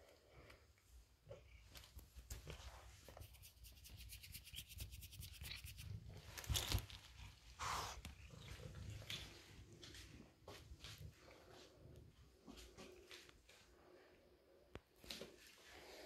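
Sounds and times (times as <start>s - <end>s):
rubbing and rustling: 1.6s - 11.5s.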